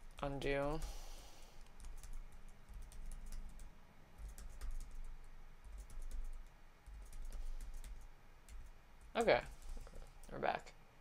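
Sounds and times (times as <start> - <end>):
keyboard keys clicking: 1.7 - 5.0, 5.7 - 8.7.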